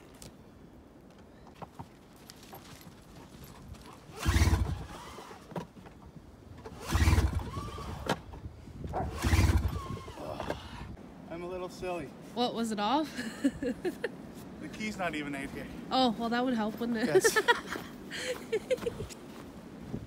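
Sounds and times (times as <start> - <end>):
engine turning over without firing: 4.1 - 5.7, 6.6 - 8.4, 9.0 - 10.4
snowmobile recoil starter pulled: 4.2 - 5.7, 6.6 - 8.2, 9.2 - 10.2.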